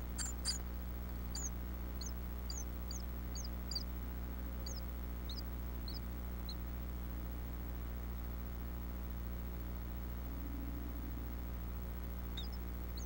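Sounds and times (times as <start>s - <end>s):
nestlings begging peeps: 0.0s - 6.7s, 12.1s - 13.0s
steady low hum: 0.0s - 13.0s.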